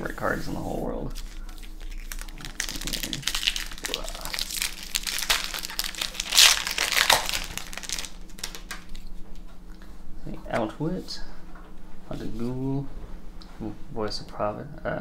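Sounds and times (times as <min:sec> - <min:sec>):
foil wrapper crinkling: 0:01.1 - 0:09.2.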